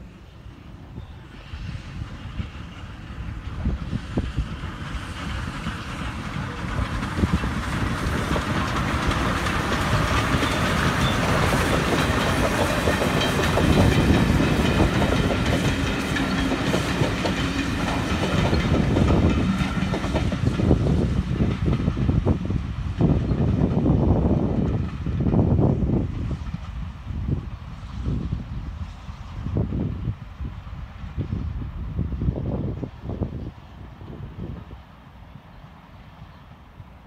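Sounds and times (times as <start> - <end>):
steam locomotives passing: 0.0 - 37.0
train wheels clickety-clack: 1.4 - 30.1.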